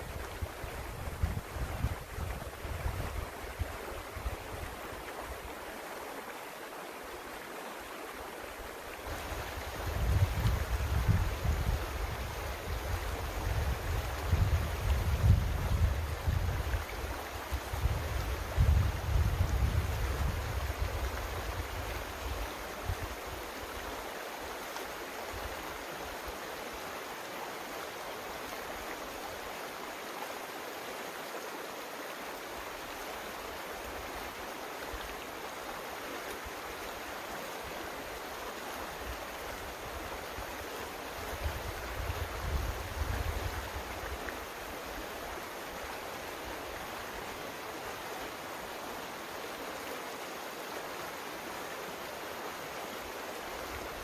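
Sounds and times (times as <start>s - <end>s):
creek water flowing: 0.0s - 54.0s.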